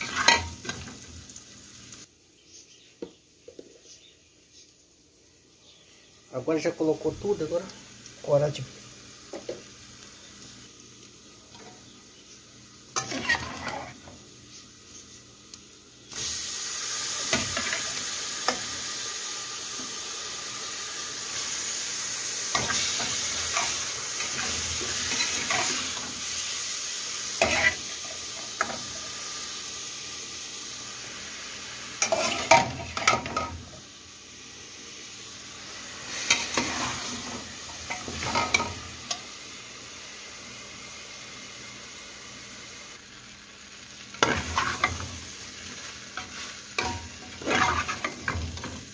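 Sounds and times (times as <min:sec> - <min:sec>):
meat sizzling in hot pan: 0:00.0 - 0:02.2, 0:05.1 - 0:48.9
spoon scraping pot: 0:13.0 - 0:14.0, 0:32.0 - 0:33.2, 0:46.2 - 0:48.3.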